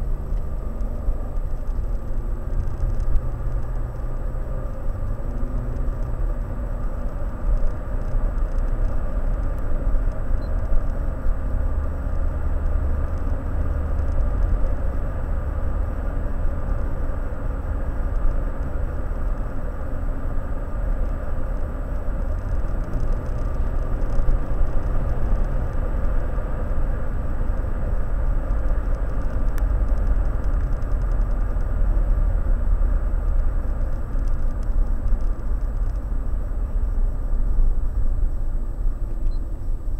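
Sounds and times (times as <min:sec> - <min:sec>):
car road and engine noise: 0:00.0 - 0:39.9.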